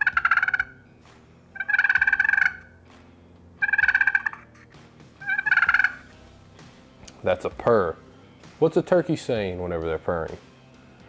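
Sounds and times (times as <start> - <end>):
friction turkey call purring: 0.0 - 0.8, 1.5 - 2.8, 3.6 - 6.3.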